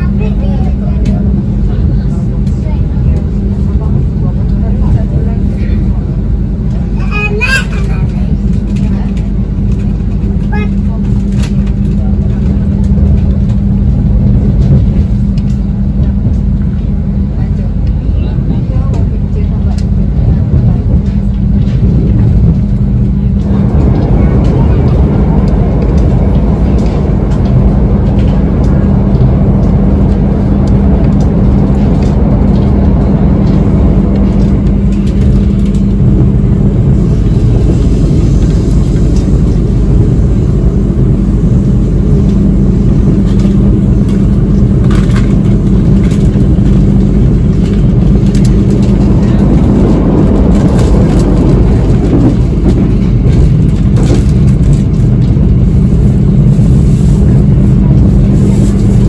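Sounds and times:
train rumbling from on board: 0.0s - 59.0s.

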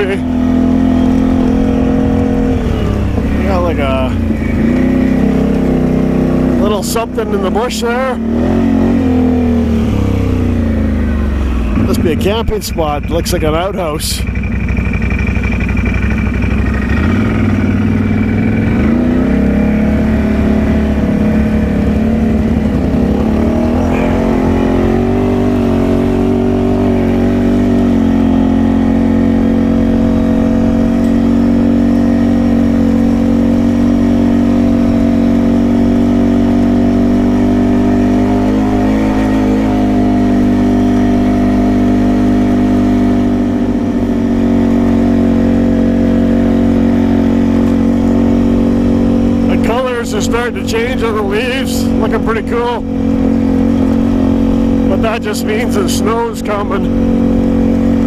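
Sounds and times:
atv engine pulling away: 0.0s - 58.0s.

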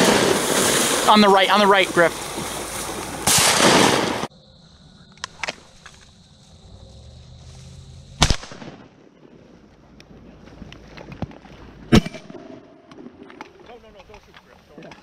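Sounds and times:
shotgun shot: 3.2s - 4.3s, 8.2s - 8.9s, 11.9s - 12.5s.

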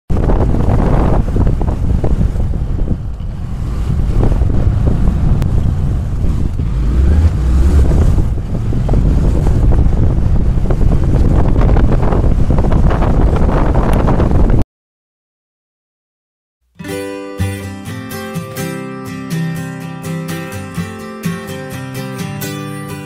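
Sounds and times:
wind buffeting microphone: 0.1s - 14.6s.

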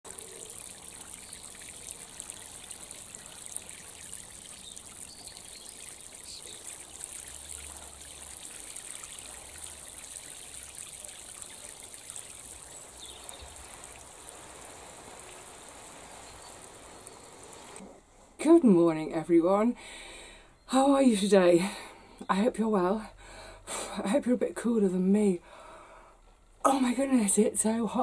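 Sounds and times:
water trickling: 0.0s - 17.8s.

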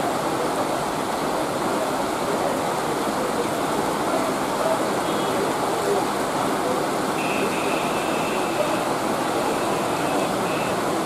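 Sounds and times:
heavy rain on pavement: 0.0s - 11.0s
faint high steady tone: 7.2s - 10.9s.

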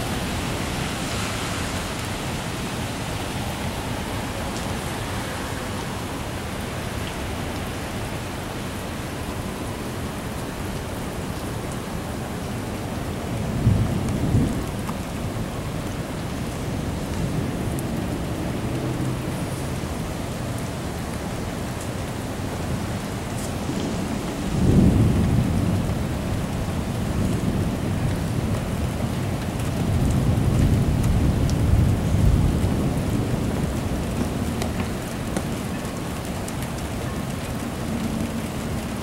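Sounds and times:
heavy rain: 0.0s - 39.0s
thunder rumbling: 23.6s - 28.1s.

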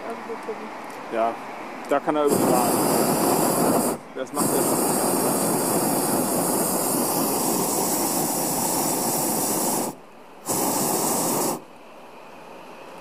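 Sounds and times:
propane burner blast: 2.0s - 11.8s.

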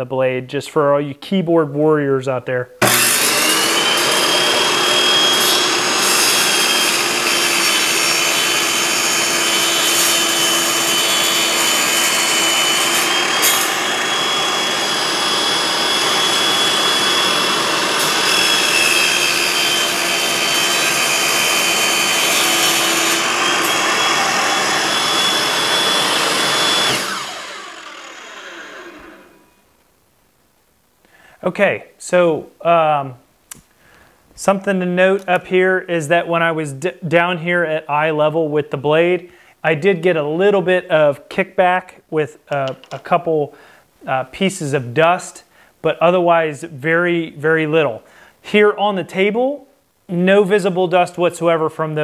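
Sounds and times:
saw winding down: 2.8s - 29.5s
table saw whining: 2.8s - 29.6s.

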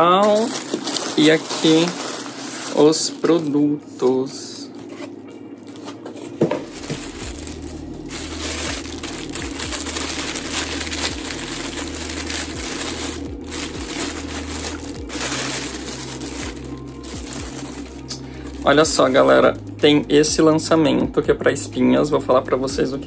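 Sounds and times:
plastic wrapping crinkling: 0.0s - 3.7s, 4.4s - 20.5s
steady low hum: 0.0s - 23.0s.

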